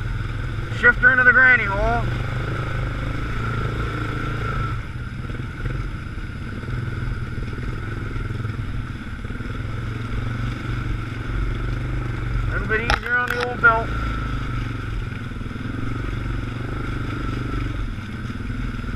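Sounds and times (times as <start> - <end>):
quad bike engine pulling: 0.0 - 18.9.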